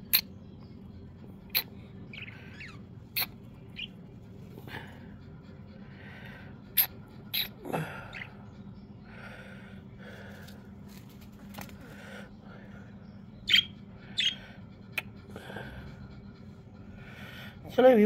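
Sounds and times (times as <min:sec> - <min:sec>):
budgerigar soft chatter: 0:01.2 - 0:04.0, 0:11.9 - 0:18.0
budgerigar squeaks: 0:01.5 - 0:04.0, 0:13.5 - 0:14.5.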